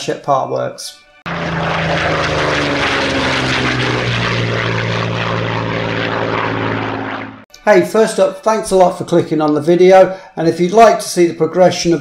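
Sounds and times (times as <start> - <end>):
propeller aircraft engine drone: 1.1 - 7.5.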